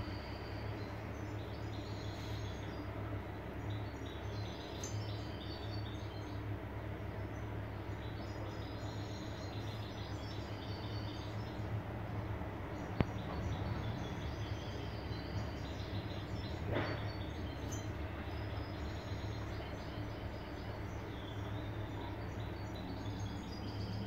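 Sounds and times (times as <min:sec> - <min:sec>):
steady low hum: 0:00.0 - 0:24.0
finches twittering: 0:12.6 - 0:24.0.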